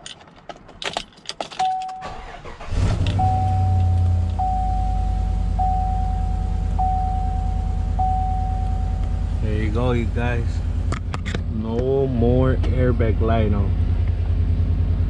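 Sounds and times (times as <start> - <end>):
keys rattling: 0.0 - 4.5
car engine starting and idling: 0.0 - 15.0
dashboard warning chime: 1.6 - 9.9.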